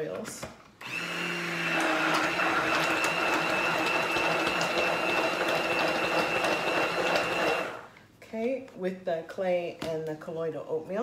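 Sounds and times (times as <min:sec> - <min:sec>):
immersion blender whine: 0:00.8 - 0:07.9.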